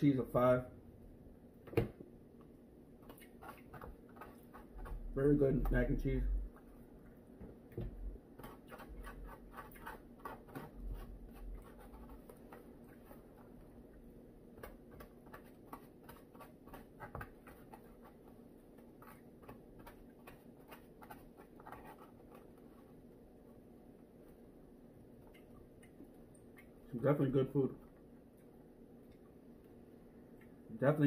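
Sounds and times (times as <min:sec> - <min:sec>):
faint room hum: 0:00.0 - 0:31.0
fork scraping plastic container: 0:08.4 - 0:13.5.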